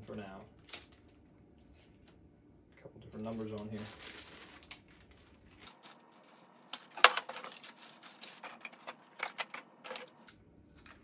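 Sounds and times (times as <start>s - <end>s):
plastic wrapping rustling: 3.2s - 11.0s
plastic parts clicking and knocking: 6.7s - 10.3s.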